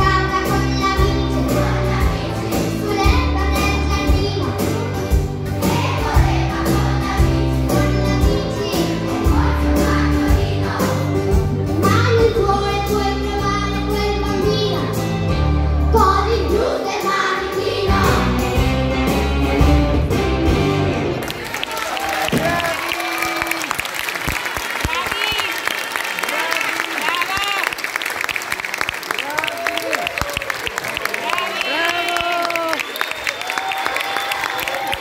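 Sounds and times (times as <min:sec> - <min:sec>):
children singing in chorus: 0:00.0 - 0:11.2, 0:16.0 - 0:18.5
instrumental accompaniment with bass: 0:00.0 - 0:21.3.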